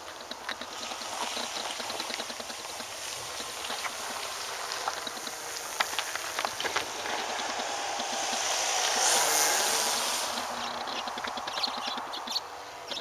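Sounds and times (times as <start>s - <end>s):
model airplane motor and propeller: 0.0s - 13.0s
steady hiss: 0.0s - 13.0s
sharp clicks: 9.9s - 13.0s.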